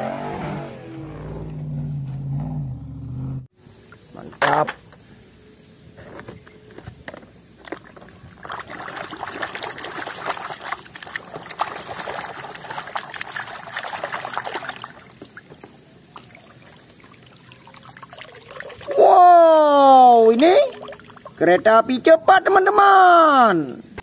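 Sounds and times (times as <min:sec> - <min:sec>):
water sloshing and splashing: 0:07.6 - 0:19.0, 0:20.2 - 0:21.6.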